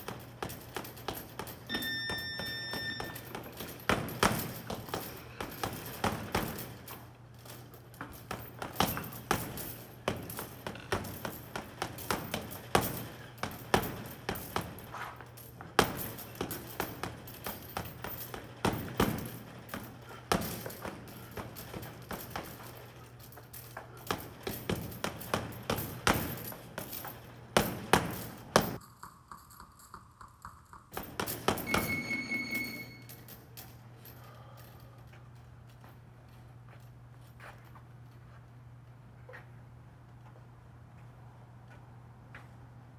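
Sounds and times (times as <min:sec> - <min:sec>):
electronic beep: 0:01.7 - 0:03.2, 0:31.7 - 0:33.0.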